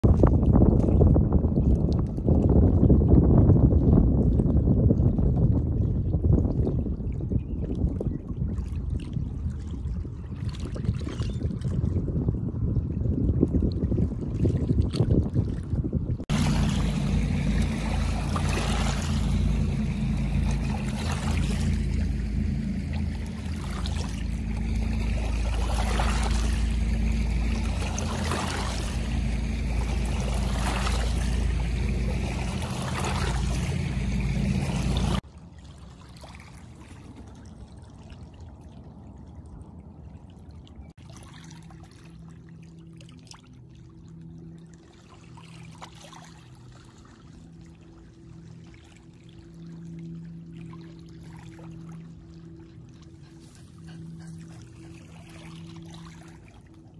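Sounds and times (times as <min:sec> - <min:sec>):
steady low rumble: 0:00.0 - 0:35.6, 0:46.4 - 0:56.9
small waves lapping on stony shore: 0:13.6 - 0:39.4, 0:40.9 - 0:43.9, 0:44.8 - 0:52.5, 0:53.2 - 0:56.9.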